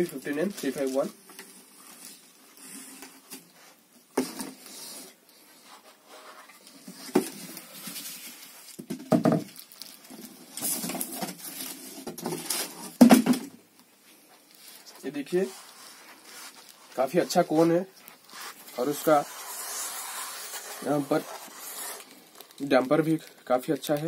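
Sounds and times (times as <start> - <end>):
plastic and cardboard rustling: 0.0 - 24.0.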